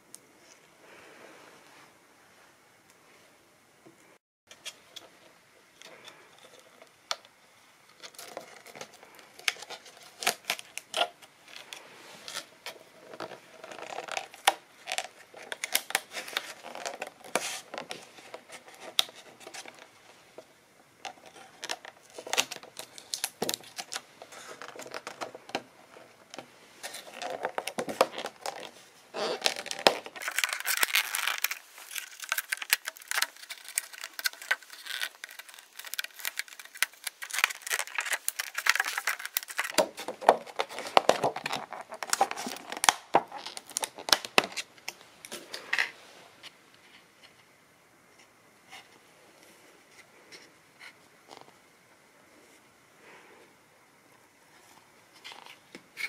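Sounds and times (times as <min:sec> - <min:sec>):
plastic container crinkling and clicking: 0:26.3 - 0:45.9.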